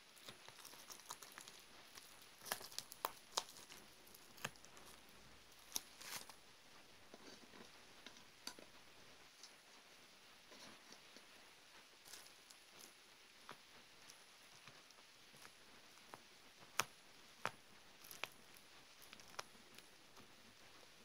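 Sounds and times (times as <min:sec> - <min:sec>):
gel squishes: 0:00.2 - 0:05.0
plastic film crinkling clicks: 0:00.2 - 0:05.0.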